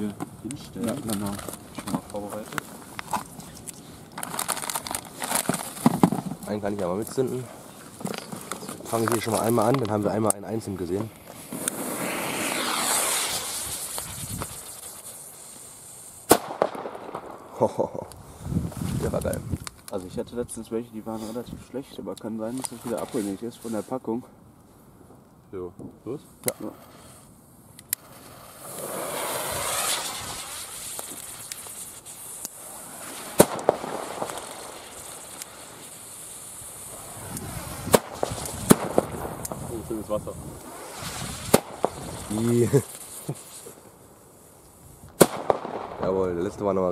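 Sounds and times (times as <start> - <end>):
firecracker fuse hissing: 0.0 - 19.9, 21.0 - 24.2, 26.1 - 46.0
firecracker bang: 11.3 - 15.1, 16.2 - 18.0, 28.2 - 31.5, 32.6 - 35.9, 36.9 - 39.9, 40.6 - 43.4, 45.2 - 46.2.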